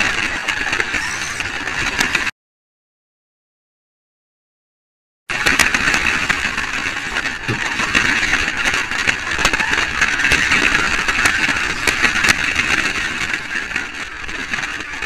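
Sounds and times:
small electric motor whirring: 0:00.9 - 0:01.5.

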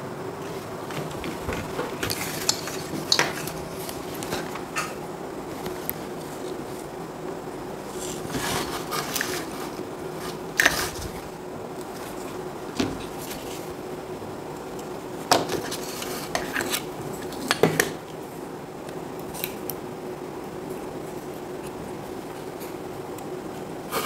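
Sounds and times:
faint steady hum: 0:00.0 - 0:24.0
rubbing and rustling: 0:00.4 - 0:07.0, 0:07.8 - 0:13.8.

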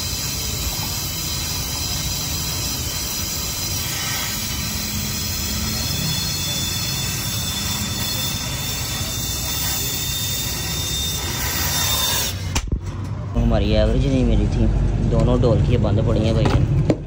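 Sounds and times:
gas welding torch hissing: 0:00.0 - 0:12.6.

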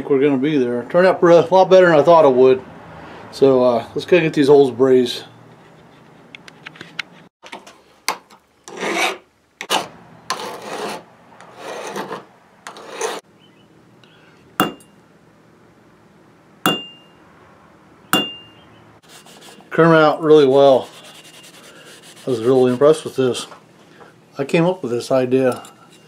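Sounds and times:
file rasping on brass: 0:08.7 - 0:13.2, 0:19.0 - 0:23.2
sharp metal taps ringing: 0:14.6 - 0:15.0, 0:16.7 - 0:17.2, 0:18.2 - 0:18.6.

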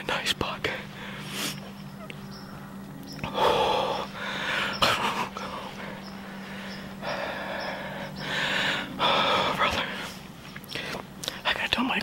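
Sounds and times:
man gasping breathily: 0:03.3 - 0:04.7, 0:05.7 - 0:09.6.

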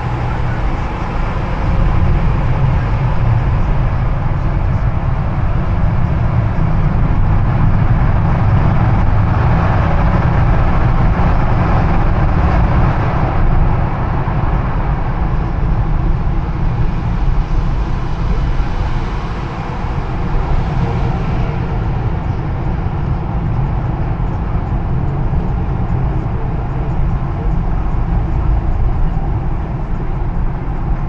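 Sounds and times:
tyre and engine noise: 0:00.0 - 0:31.0.

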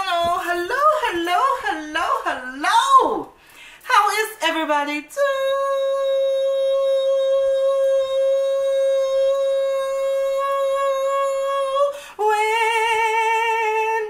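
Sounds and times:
woman singing long note: 0:05.1 - 0:14.0.

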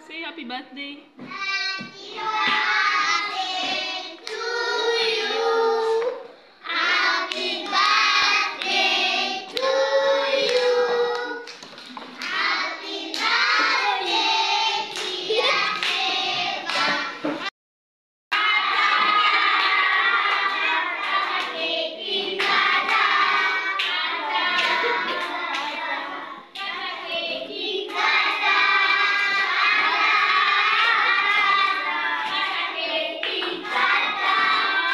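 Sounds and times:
children singing in chorus: 0:01.3 - 0:11.5, 0:12.2 - 0:17.4, 0:18.4 - 0:26.5, 0:27.1 - 0:34.9
hand clapping: 0:10.4 - 0:12.4, 0:14.9 - 0:17.1, 0:23.8 - 0:25.8, 0:33.2 - 0:34.9.

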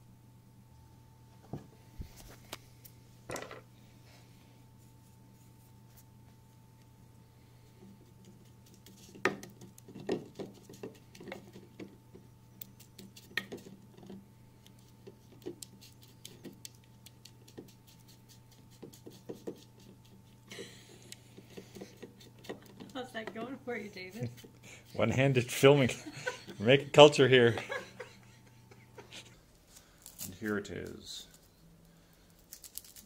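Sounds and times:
faint steady hum: 0:00.0 - 0:33.0
paintbrush tapping and scratching: 0:08.0 - 0:14.2, 0:14.8 - 0:20.5, 0:21.3 - 0:25.1.

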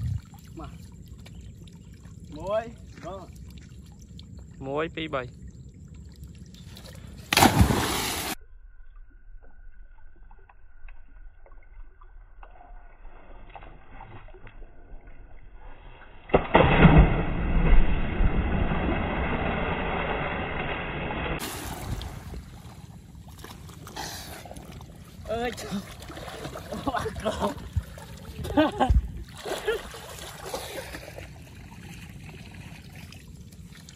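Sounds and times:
water churning and sloshing: 0:00.0 - 0:08.4, 0:16.3 - 0:33.9
person splashing into water: 0:07.2 - 0:08.4, 0:16.3 - 0:20.7, 0:21.3 - 0:31.4.

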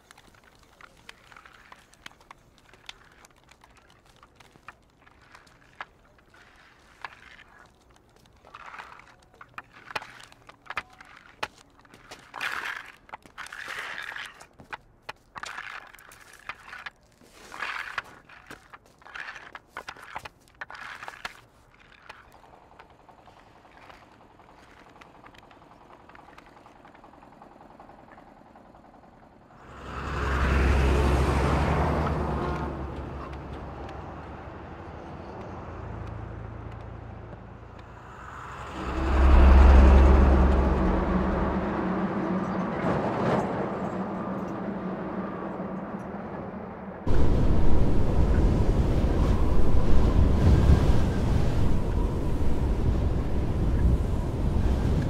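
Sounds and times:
footsteps: 0:00.0 - 0:22.4
truck engine rumbling passing by: 0:29.5 - 0:55.0.

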